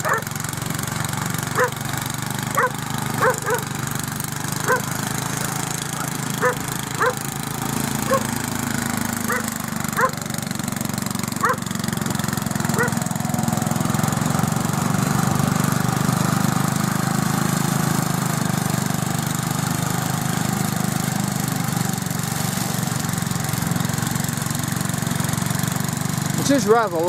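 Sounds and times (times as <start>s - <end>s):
lawn tractor mowing grass: 0.0s - 27.0s.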